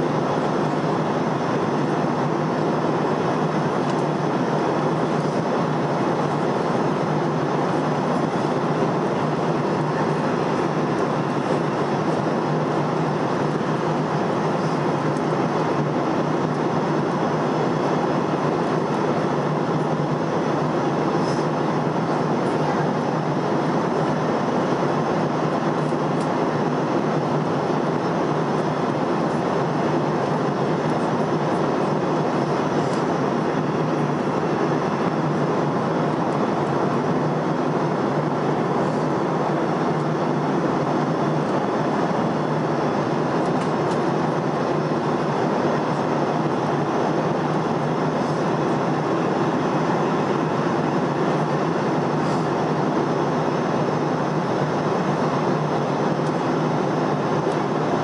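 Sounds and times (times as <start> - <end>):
airliner cabin engine rush: 0.0 - 58.0.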